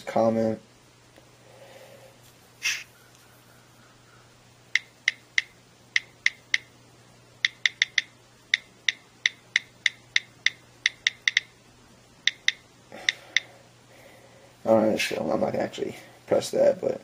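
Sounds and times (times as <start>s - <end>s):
on-screen keyboard clicks: 7.4s - 11.5s, 12.3s - 13.5s.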